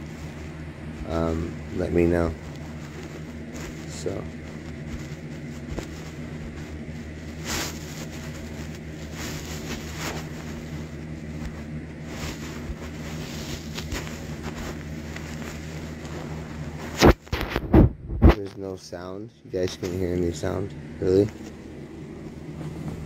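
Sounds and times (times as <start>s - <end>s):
faint clicks and rustles: 0.0s - 17.7s
low hum: 0.0s - 23.0s.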